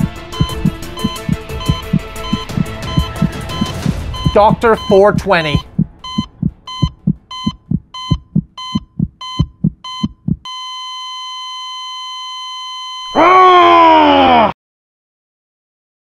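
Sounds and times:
low heartbeat thump: 0.0s - 10.5s
heart monitor beeping: 0.0s - 13.1s
heart monitor flatline tone: 0.0s - 13.1s.

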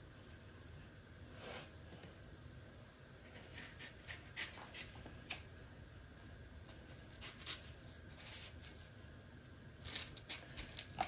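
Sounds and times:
plantains rustling and clicking: 9.8s - 11.0s.

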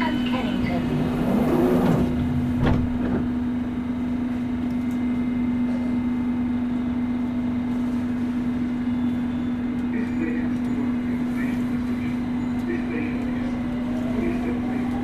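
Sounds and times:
train rumble: 0.0s - 15.0s.

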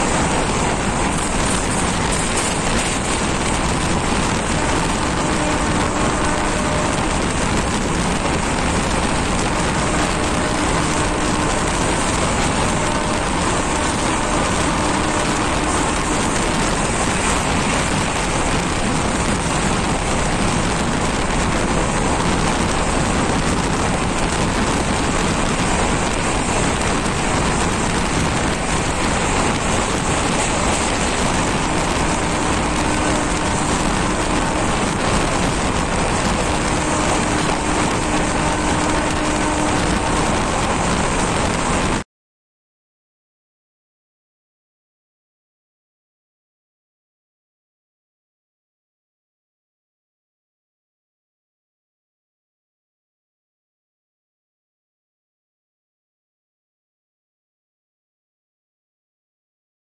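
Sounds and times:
train wheels rushing on rails: 0.0s - 42.0s.

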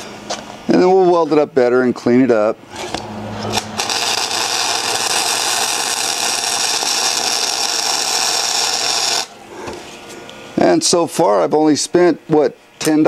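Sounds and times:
electric welding arc: 2.9s - 9.4s.

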